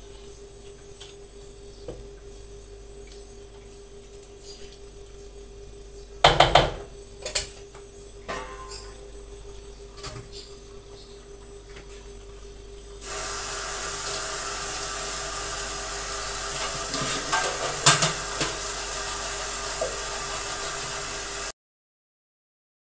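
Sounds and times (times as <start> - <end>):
steady hiss from simmering pan: 12.9 - 21.5.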